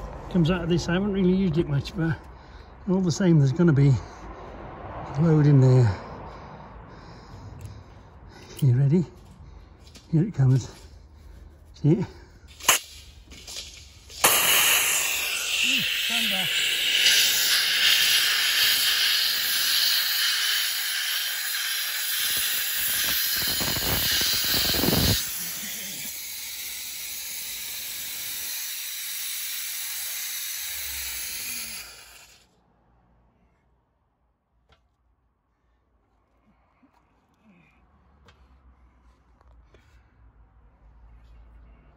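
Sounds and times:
compressed air hissing from valve: 14.1s - 32.4s.

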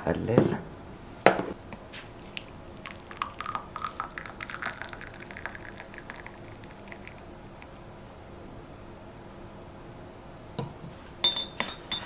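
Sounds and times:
tea pouring into glass: 1.8s - 7.7s.

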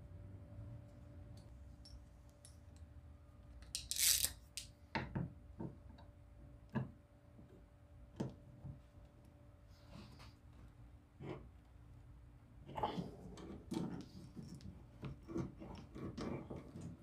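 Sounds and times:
scraping rasp: 12.8s - 17.0s.

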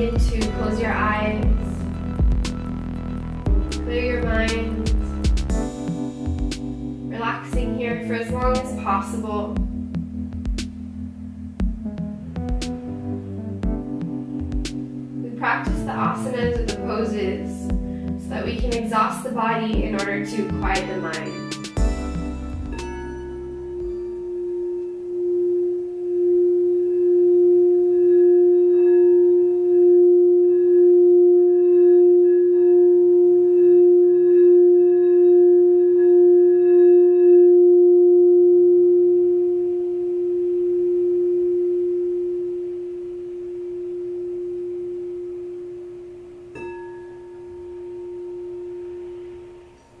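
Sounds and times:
singing bowl ringing: 19.3s - 50.0s.

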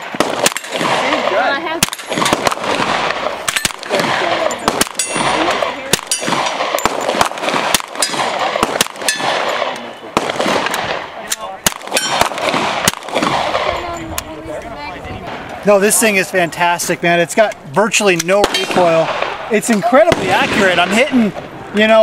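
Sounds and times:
carbine gunshots: 0.0s - 14.2s, 18.3s - 21.6s.

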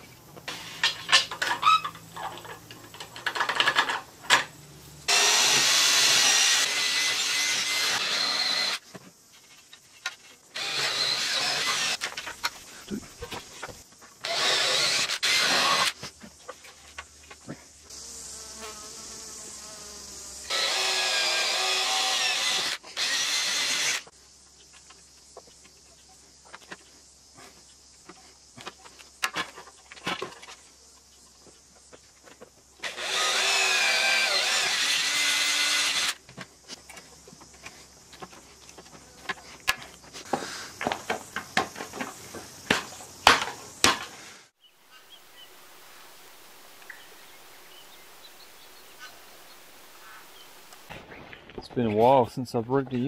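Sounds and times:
cordless drill boring into metal: 5.1s - 8.8s, 10.6s - 12.0s, 14.2s - 16.0s, 20.5s - 24.1s, 32.8s - 36.2s.

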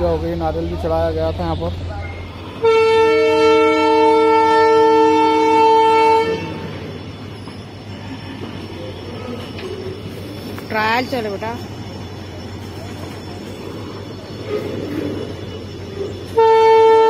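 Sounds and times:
train wagons rumbling on rails: 0.0s - 17.0s
train horn blast: 2.6s - 6.8s, 16.3s - 17.0s.

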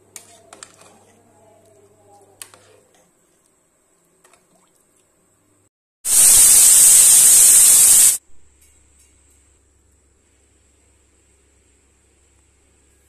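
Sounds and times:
loud steady hiss: 6.1s - 8.3s.

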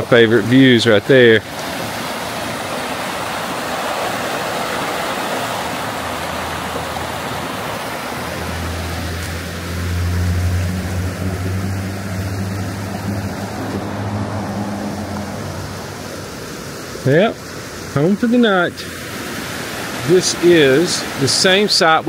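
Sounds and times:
stream rushing over rocks: 0.0s - 22.0s
low motor hum: 5.7s - 16.3s.

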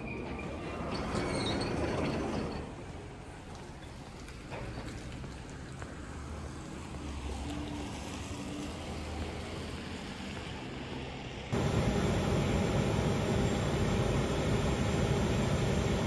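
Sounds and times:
wind: 0.0s - 16.0s
wet road traffic: 3.2s - 16.0s
airport apron roar: 11.5s - 16.0s
faint hum: 11.5s - 16.0s.

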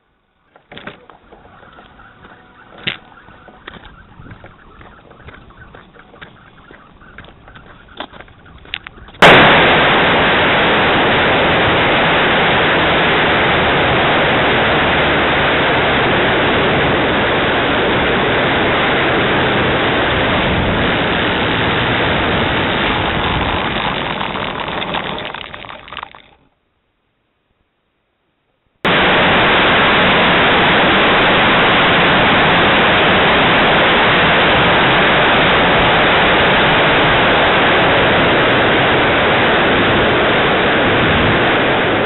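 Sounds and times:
model aircraft engine at high power: 9.9s - 25.4s.

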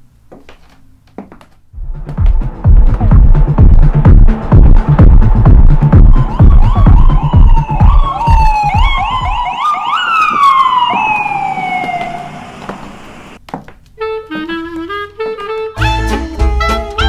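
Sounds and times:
electronic music with heavy beat: 1.8s - 10.4s
ambulance siren: 5.9s - 13.4s.

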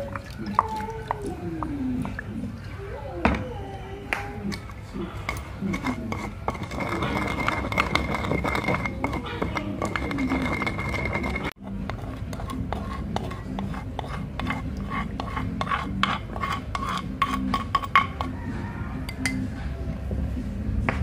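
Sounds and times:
utensils clinking against cookware: 4.5s - 18.4s.

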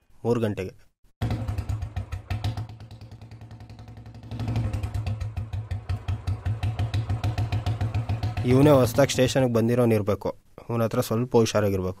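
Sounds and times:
motorcycle engine thumping: 1.2s - 9.2s.

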